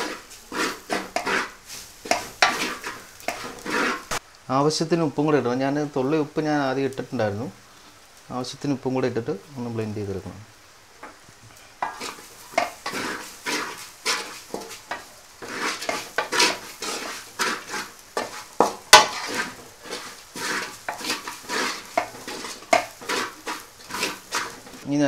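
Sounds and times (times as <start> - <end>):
wooden spatula scraping metal pot: 0.0 - 4.2, 11.8 - 24.9.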